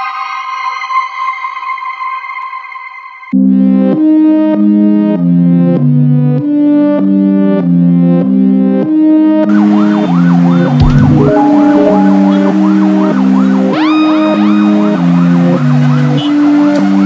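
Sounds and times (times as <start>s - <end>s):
ambulance siren wailing: 9.5s - 17.0s
synthesizer chords: 10.6s - 15.0s
low thump: 10.8s - 11.9s
traffic noise: 12.3s - 17.0s.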